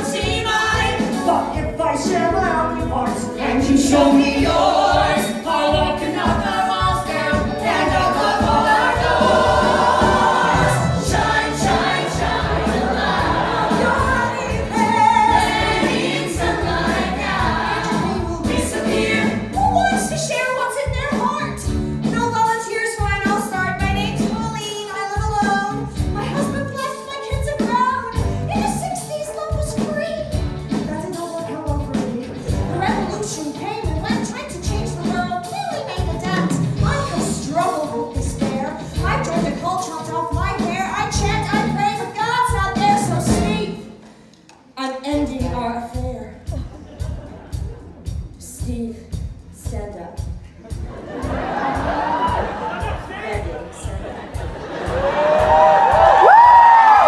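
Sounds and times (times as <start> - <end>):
band accompaniment with steady beat: 0.0 - 57.0
cast singing in chorus: 3.4 - 19.5.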